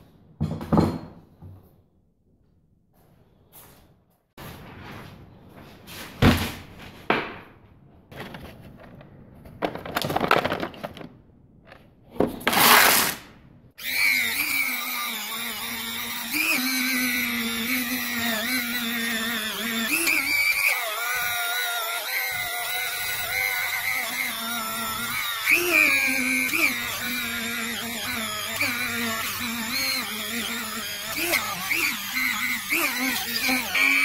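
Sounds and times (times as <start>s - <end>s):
plastic case clattering: 8.1s - 11.2s
rotary tool whining: 12.5s - 13.2s, 13.8s - 34.0s.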